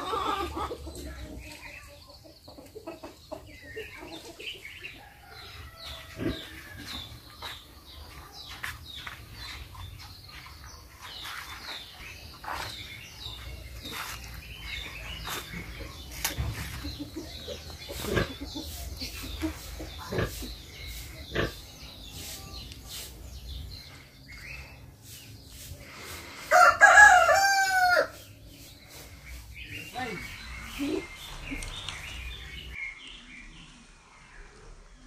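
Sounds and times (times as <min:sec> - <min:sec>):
rooster crowing: 0:26.5 - 0:28.2.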